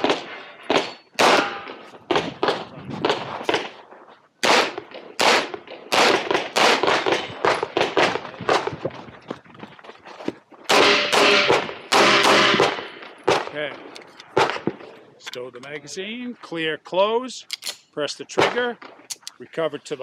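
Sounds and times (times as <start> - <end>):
pistol shots: 0.0 - 3.8, 4.4 - 8.7, 10.7 - 14.9.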